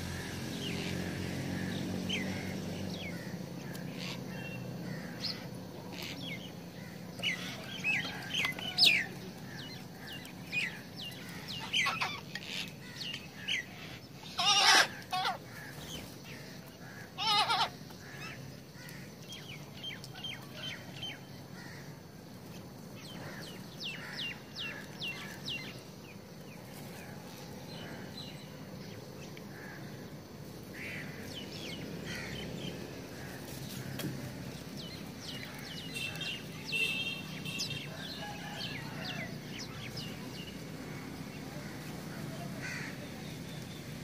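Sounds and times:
small birds chirping: 0.0 - 44.0
crows cawing: 1.4 - 4.2, 4.8 - 5.5, 14.2 - 19.2, 21.5 - 22.0, 29.5 - 32.5, 40.9 - 43.1.

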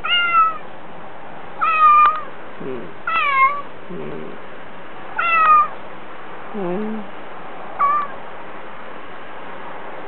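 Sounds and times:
cat meowing: 0.0 - 0.7, 1.6 - 2.3, 3.0 - 4.1, 5.2 - 5.8, 7.8 - 8.2.

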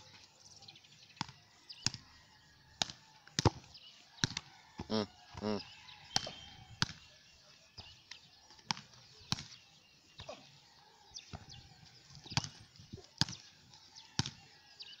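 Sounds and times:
football kicked on grass: 2.8 - 4.4, 6.1 - 7.1, 11.2 - 13.5.

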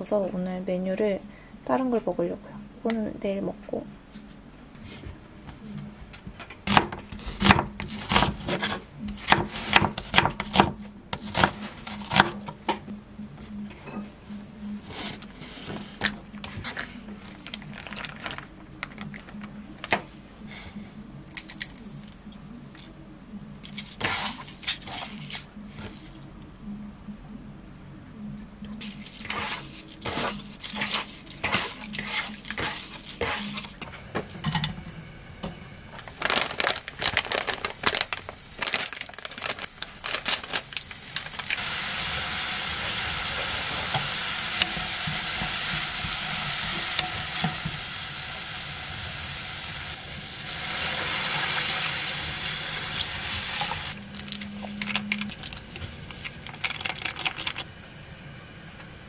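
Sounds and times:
food sizzling in a pan: 41.6 - 54.0.

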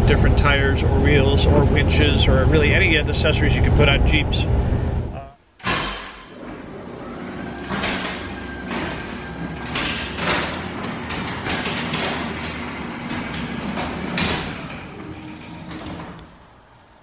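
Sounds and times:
garage door rolling up: 5.6 - 17.0
rollers rattling clunks: 5.6 - 17.0.

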